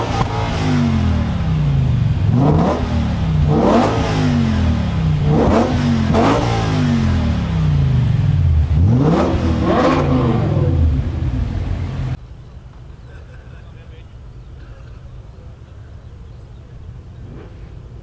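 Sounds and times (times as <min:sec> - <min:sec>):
car engine revving: 0:00.0 - 0:12.2.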